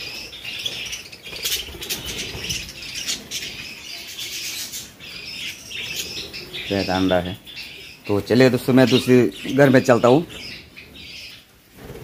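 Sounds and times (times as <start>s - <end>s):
wings fluttering: 0.0s - 3.8s, 11.5s - 12.0s
budgerigars chattering: 0.0s - 11.5s.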